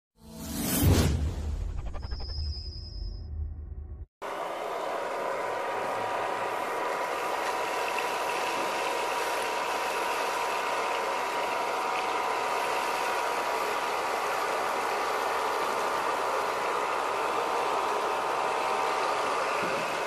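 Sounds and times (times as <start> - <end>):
vacuum cleaner running: 4.2 - 20.0.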